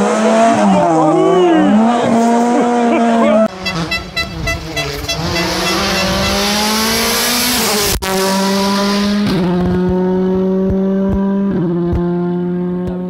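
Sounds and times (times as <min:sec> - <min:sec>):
rally car engine at high revs: 0:00.0 - 0:13.0.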